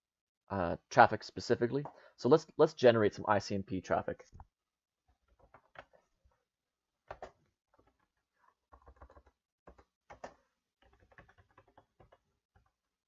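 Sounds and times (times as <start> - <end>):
keyboard typing: 5.2 - 6.0, 7.1 - 8.1, 8.7 - 12.8.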